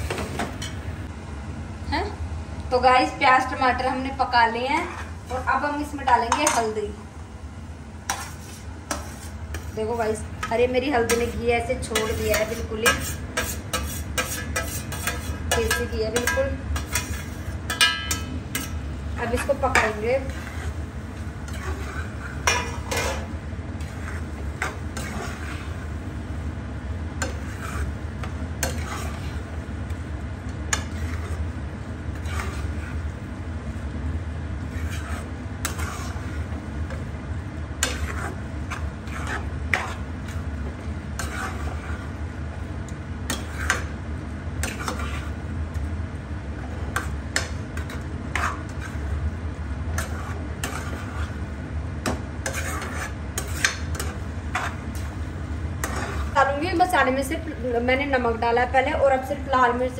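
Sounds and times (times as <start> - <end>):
steady low hum: 0.0 - 59.9
spoon scraping a pan: 8.0 - 26.0, 27.1 - 29.6, 30.7 - 33.1, 34.6 - 37.1, 37.8 - 42.2, 43.2 - 44.0, 44.6 - 45.4, 46.8 - 49.2, 49.9 - 57.4.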